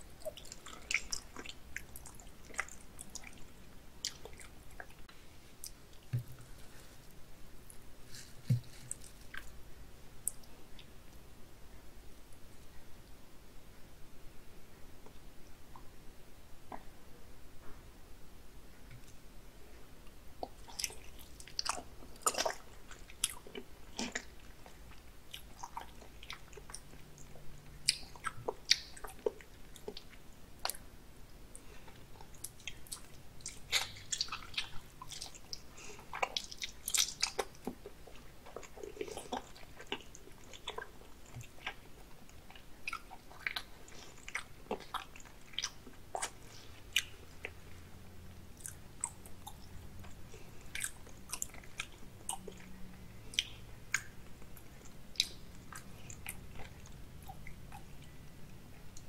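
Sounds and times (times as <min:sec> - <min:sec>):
mouth chewing clicks and smacks: 0:00.0 - 0:06.5, 0:20.4 - 0:30.9, 0:31.5 - 0:47.9, 0:48.5 - 0:59.0.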